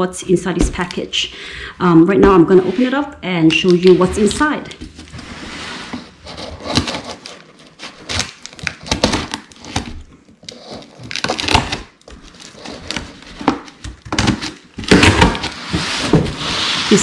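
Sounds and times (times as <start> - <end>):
cardboard and tape rustling: 2.2 - 17.0.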